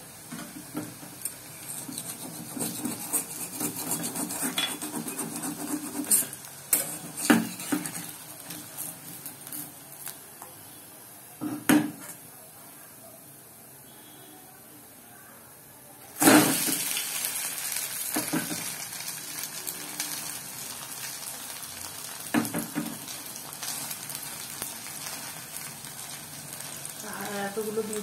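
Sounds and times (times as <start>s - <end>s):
metal spatula scraping pan: 1.5s - 9.7s.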